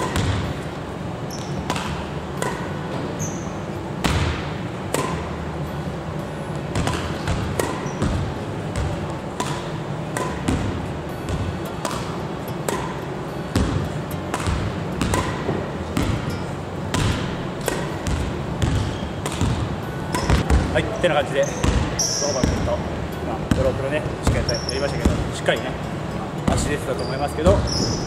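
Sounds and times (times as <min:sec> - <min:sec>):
racket hitting shuttlecock: 0:00.0 - 0:00.7, 0:01.3 - 0:03.3, 0:04.0 - 0:05.8, 0:06.7 - 0:20.8
low background noise: 0:00.0 - 0:28.0.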